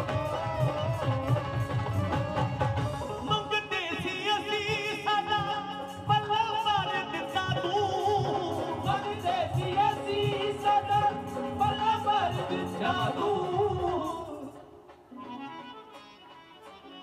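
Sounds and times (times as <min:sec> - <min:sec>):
person singing: 0:00.0 - 0:14.8
drums beating: 0:00.0 - 0:16.9
keyboards: 0:00.0 - 0:17.0.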